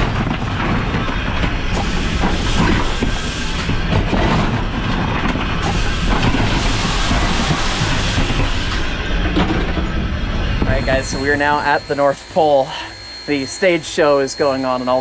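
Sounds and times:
knocks and rattles: 0.0 - 10.7
locomotive running gear rumbling: 0.0 - 12.6.

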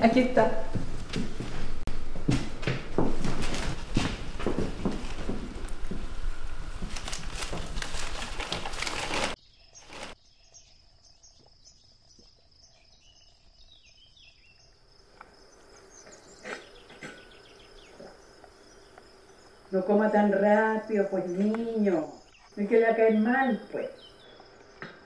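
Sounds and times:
crackling rustling noise: 0.7 - 10.2
cricket chirping: 9.4 - 25.0.

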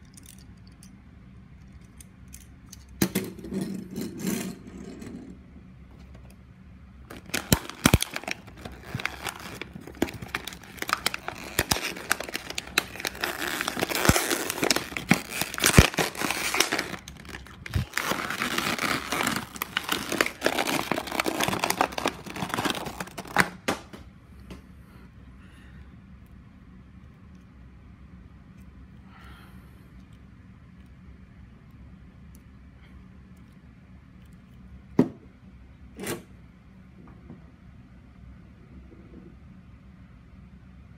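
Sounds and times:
plastic packaging crinkling: 7.1 - 23.8.

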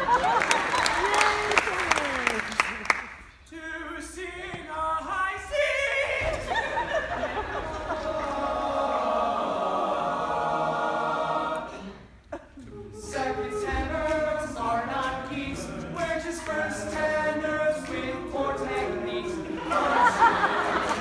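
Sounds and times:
men's choir singing in harmony: 3.6 - 21.0.

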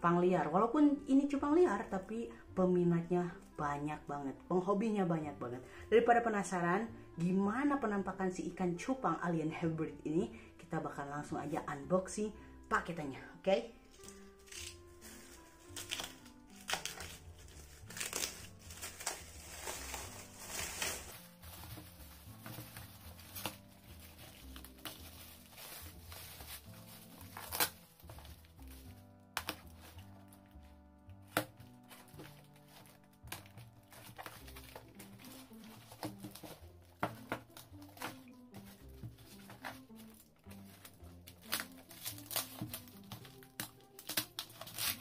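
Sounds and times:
background music with held notes: 0.0 - 45.0
knife cutting tape and cardboard: 14.0 - 21.8, 22.4 - 28.8, 40.5 - 45.0
plastic bag crinkling and tearing: 14.0 - 30.5, 31.8 - 45.0
box being handled: 15.0 - 44.6.

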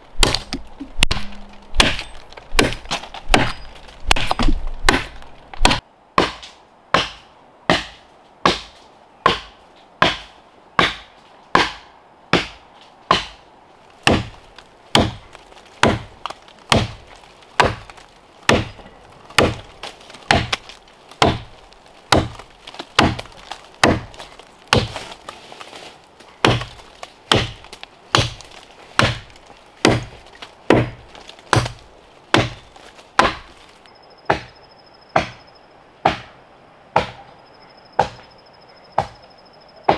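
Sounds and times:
axe chopping into tree trunk: 0.2 - 13.4, 14.0 - 15.2, 15.8 - 16.1, 16.7 - 17.0, 17.6 - 21.5, 22.1 - 25.2, 26.4 - 32.6, 33.2 - 33.6, 34.3 - 34.5, 35.2 - 35.4, 36.0 - 36.4, 37.0 - 37.2.

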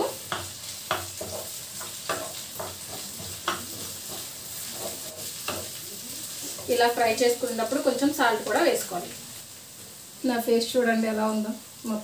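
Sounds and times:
spatula scraping and tapping pan: 0.0 - 7.4
onions sizzling in a frying pan: 0.0 - 12.0.

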